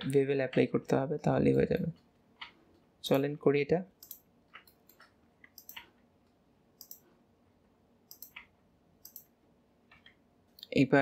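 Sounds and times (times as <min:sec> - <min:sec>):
mouse and keyboard clicks: 0:04.0 - 0:05.9, 0:06.8 - 0:07.1, 0:08.1 - 0:09.3.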